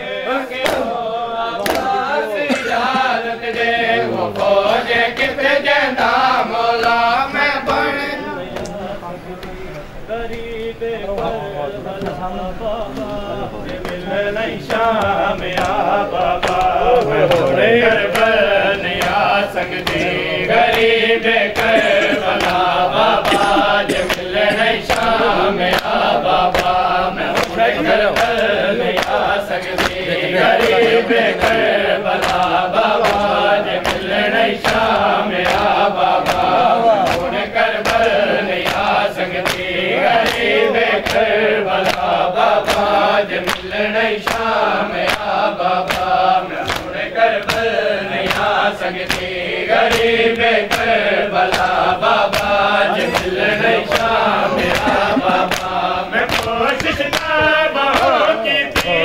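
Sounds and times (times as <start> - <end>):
men chanting a lament: 0.0 - 59.0
hands slapping chests: 0.6 - 0.9, 1.6 - 2.0, 8.5 - 8.8, 13.0 - 59.0.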